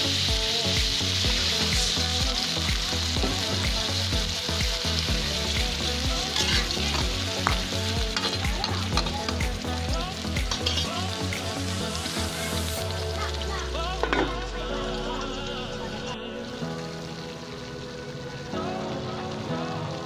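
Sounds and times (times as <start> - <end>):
food sizzling in hot oil: 0.0 - 20.0
spatula scraping wok: 6.3 - 9.4, 10.5 - 12.8.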